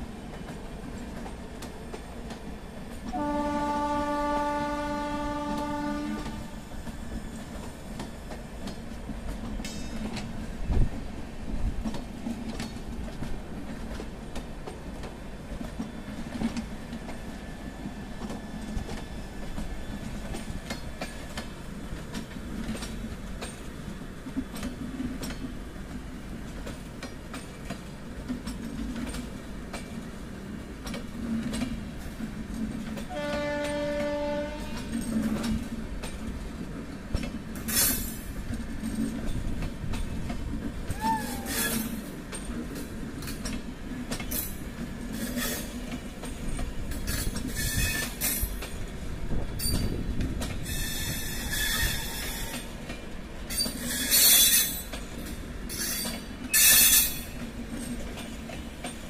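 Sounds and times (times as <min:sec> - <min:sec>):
train rumbling past: 0:00.0 - 0:59.0
train horn blast: 0:03.1 - 0:06.6, 0:33.1 - 0:35.0
high wheel squeals: 0:41.0 - 0:42.0, 0:50.7 - 0:52.6, 0:53.5 - 0:54.8, 0:55.7 - 0:57.3.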